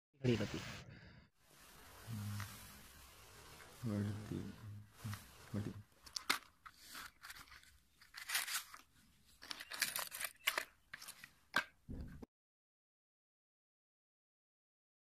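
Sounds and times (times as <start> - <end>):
matchbox sliding open: 5.0 - 11.4
matchsticks rattling out: 5.0 - 11.7.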